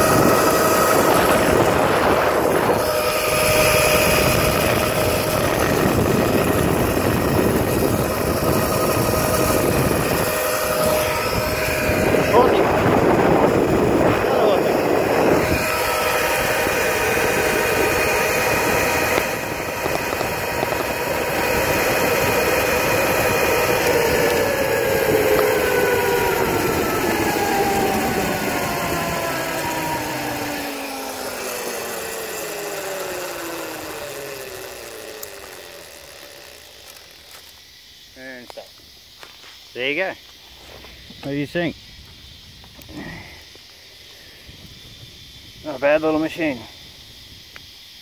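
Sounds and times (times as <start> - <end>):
wind and tyre noise: 0.0 - 32.1
electric motor whining: 0.0 - 38.3.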